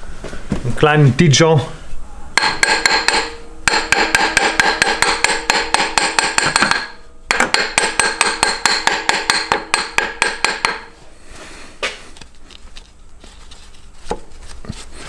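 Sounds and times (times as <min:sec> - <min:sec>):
rapid metal hammering: 0:02.4 - 0:11.0.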